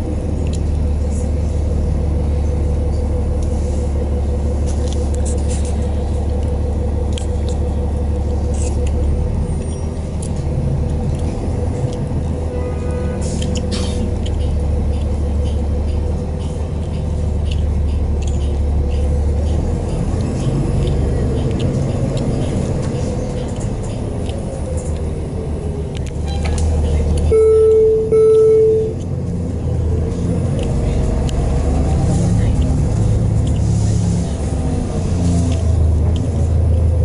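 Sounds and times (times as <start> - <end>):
bus engine hum and motor whine: 0.0 - 37.0
electronic beeps: 27.3 - 29.0.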